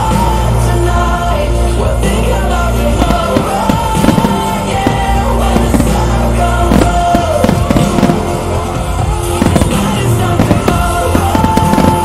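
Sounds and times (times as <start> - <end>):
loud rock music: 0.0 - 12.0
firework shells bursting: 2.9 - 12.0.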